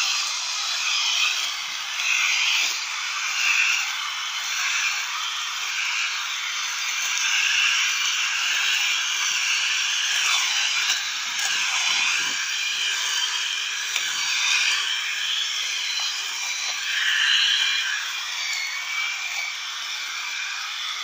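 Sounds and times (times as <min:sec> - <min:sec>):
string trimmer motor whine: 0:00.0 - 0:21.0.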